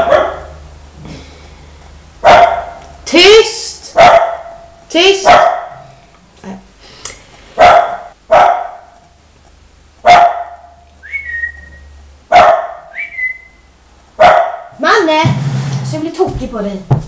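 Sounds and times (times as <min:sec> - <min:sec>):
dog barking: 0:00.0 - 0:00.6, 0:02.2 - 0:02.8, 0:04.0 - 0:05.9, 0:07.6 - 0:09.0, 0:10.0 - 0:10.8, 0:12.3 - 0:13.0, 0:14.2 - 0:14.8
high whistle-like tones: 0:11.0 - 0:12.0, 0:12.9 - 0:13.7.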